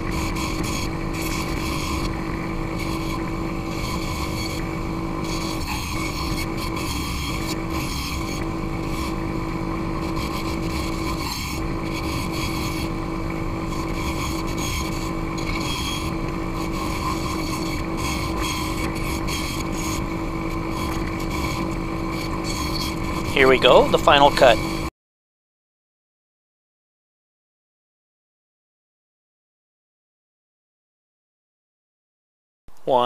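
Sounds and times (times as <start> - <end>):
bandsaw cutting plywood: 0.0 - 24.9.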